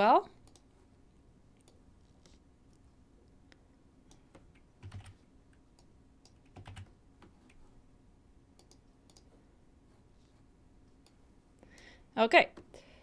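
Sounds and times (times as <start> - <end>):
computer keyboard key presses: 4.1 - 5.2, 6.3 - 6.9.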